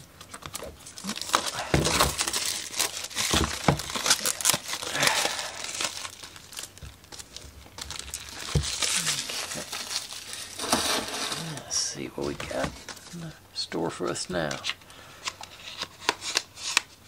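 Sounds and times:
plastic wrap crinkling: 0.0 - 13.4.

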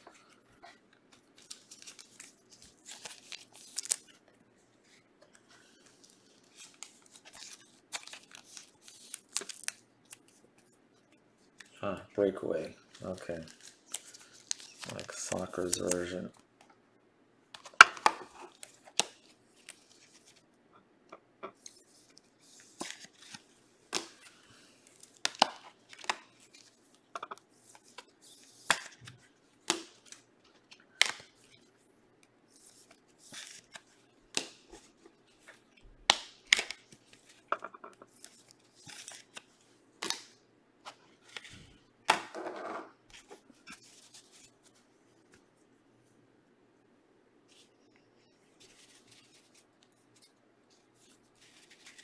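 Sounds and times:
wrapper ripping and crinkling: 1.4 - 4.2, 6.0 - 9.8, 12.9 - 16.2.

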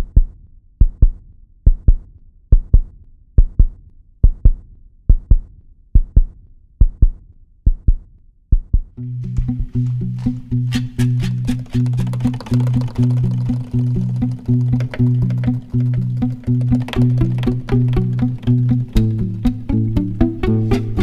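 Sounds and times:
heartbeat thumps: 0.0 - 9.0
music with sustained low notes: 9.0 - 21.0.

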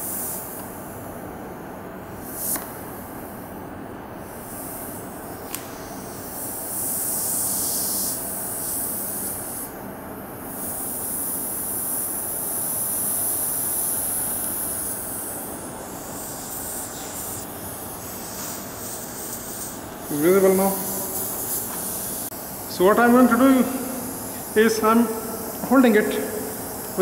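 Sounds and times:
high hiss: 10.5 - 27.0
workshop background noise: 11.8 - 27.0.

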